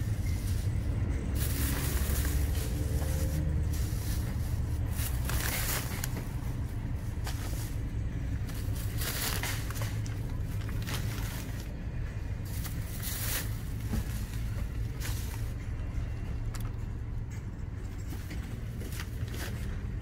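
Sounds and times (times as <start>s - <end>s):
plastic bags rustling: 0.0s - 11.8s, 12.4s - 15.6s
steady low rumble: 0.0s - 20.0s.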